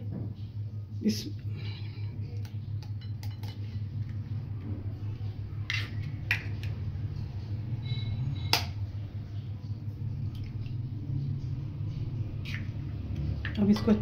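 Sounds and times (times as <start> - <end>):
steady low hum: 0.0 - 14.0
spoon cracking eggs: 2.4 - 4.2.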